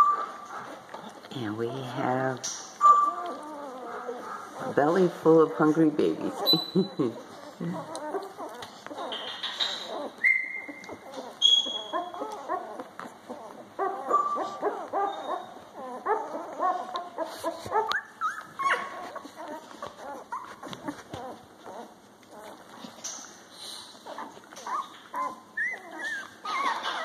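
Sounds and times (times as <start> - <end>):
puppies whimpering and squeaking: 0.0 - 27.0.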